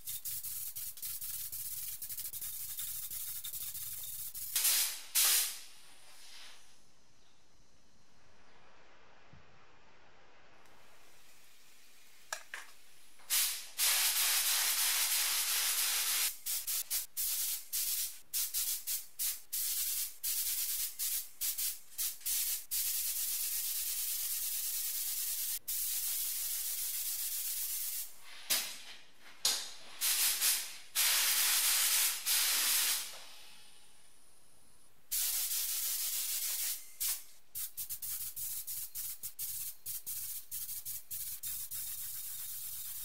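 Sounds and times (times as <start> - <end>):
paint spray gun hissing: 0.0 - 5.7, 13.3 - 28.1, 30.0 - 33.2, 35.1 - 43.0.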